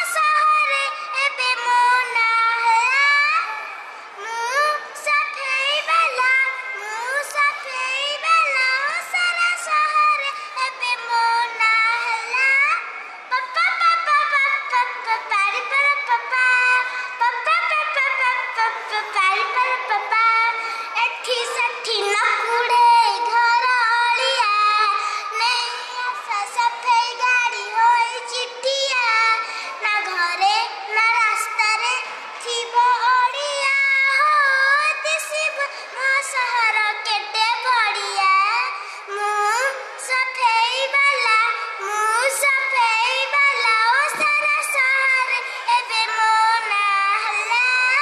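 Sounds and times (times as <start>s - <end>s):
young child singing: 0.0s - 48.0s.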